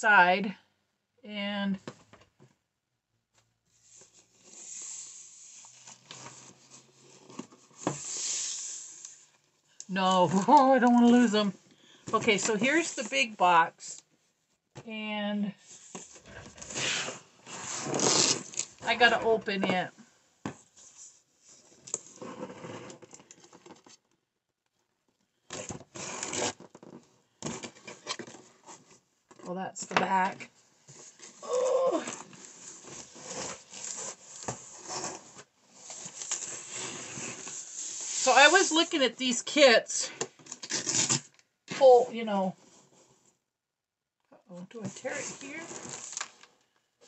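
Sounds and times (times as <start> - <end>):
cardboard box lid scraping: 16.1 - 19.4, 22.0 - 23.2
packaging rustling and crinkling: 45.0 - 46.7.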